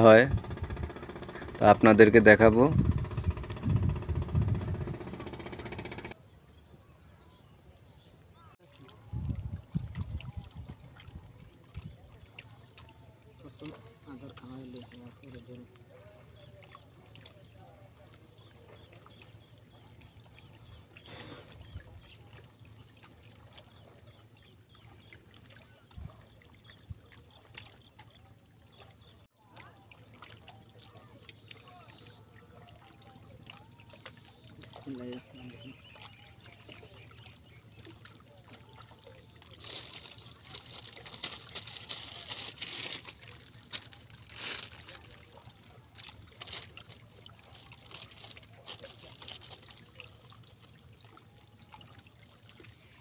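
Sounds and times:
low steady drone: 0:00.0 - 0:06.2
river water trickling and lapping: 0:00.0 - 0:53.0
plastic bag rustling: 0:39.6 - 0:45.2, 0:46.0 - 0:49.8.

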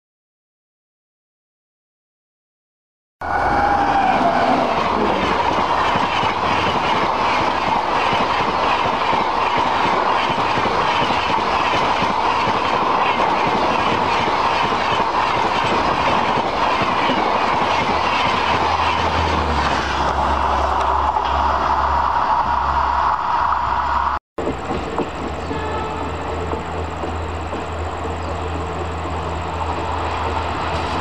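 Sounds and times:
train wheels clickety-clack: 0:04.0 - 0:20.2, 0:24.4 - 0:31.0.

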